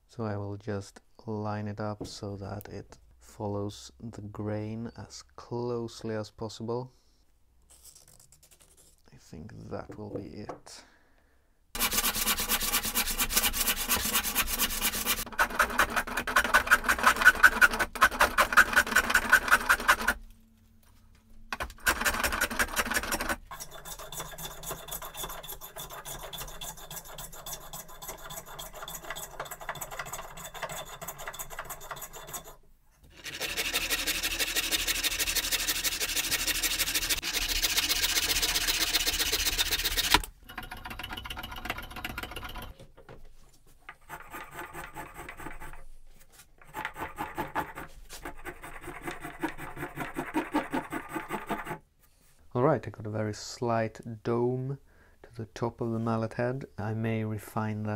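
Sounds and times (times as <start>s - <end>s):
hand plane rubbing strokes: 11.8s - 20.2s, 21.8s - 42.7s, 43.9s - 51.8s
handsaw cutting wood: 11.8s - 20.2s, 21.7s - 40.3s, 44.0s - 45.8s, 46.7s - 51.8s.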